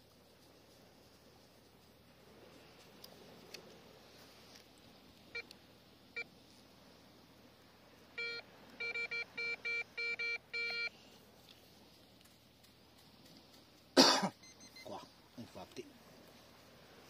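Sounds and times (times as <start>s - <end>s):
metal detector beeping: 8.2s - 11.0s, 14.4s - 15.0s.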